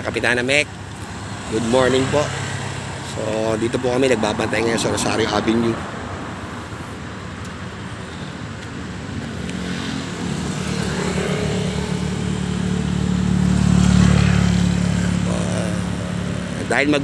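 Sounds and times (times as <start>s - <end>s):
motorcycle engine passing by: 9.6s - 16.0s.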